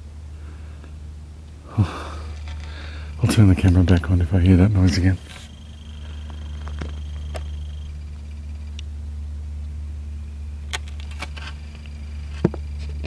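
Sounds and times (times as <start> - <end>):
steady low hum: 0.0 - 13.0
small clicks and crackles: 10.7 - 13.0.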